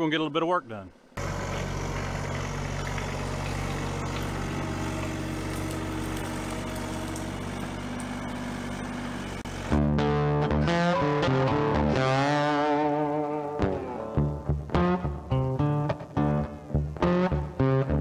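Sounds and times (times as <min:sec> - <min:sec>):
excavator diesel engine running: 0:01.2 - 0:10.0.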